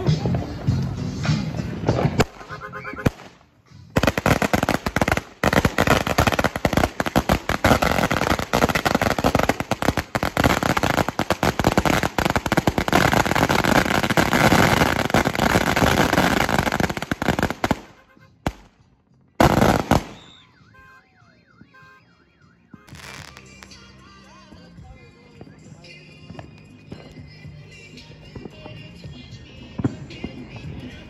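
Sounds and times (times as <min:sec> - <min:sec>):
firecrackers banging: 0:00.0 - 0:18.8, 0:19.4 - 0:20.4.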